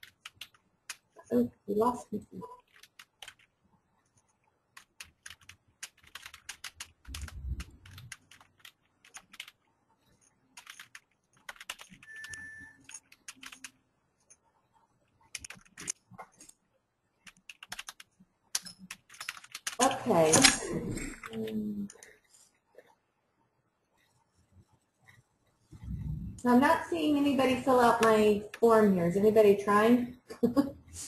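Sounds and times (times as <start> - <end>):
keyboard typing: 0.0 - 1.2, 2.4 - 16.6, 17.2 - 22.2.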